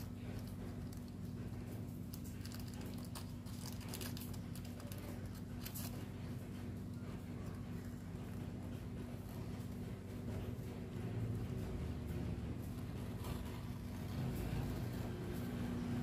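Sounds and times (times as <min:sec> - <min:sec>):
clicks and crinkly rustles: 0:00.0 - 0:10.9
steady low hum: 0:00.0 - 0:16.0.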